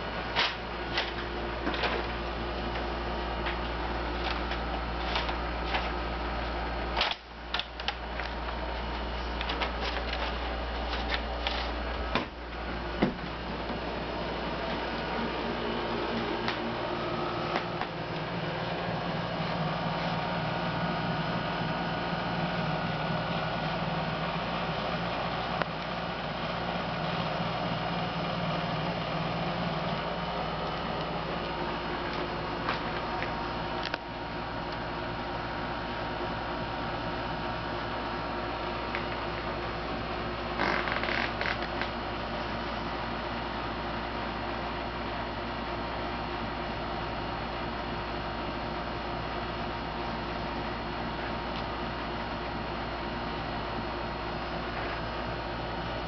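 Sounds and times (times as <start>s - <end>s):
steady low hum: 0.0s - 56.0s
paper crackling and rustling: 7.9s - 12.2s.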